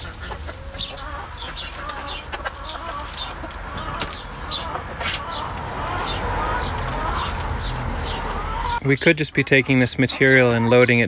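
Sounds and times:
digging fork in compost: 0:00.0 - 0:05.6
hens clucking: 0:00.0 - 0:11.0.

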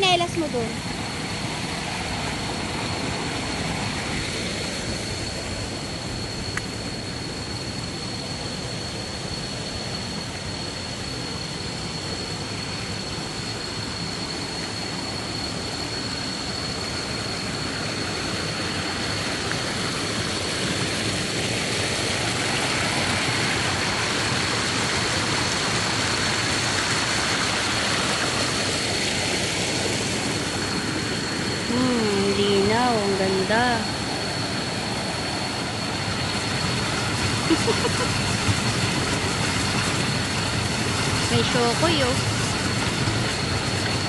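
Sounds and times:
thin high-pitched whine: 0:00.0 - 0:44.0
flowing water rushing: 0:16.8 - 0:44.0.

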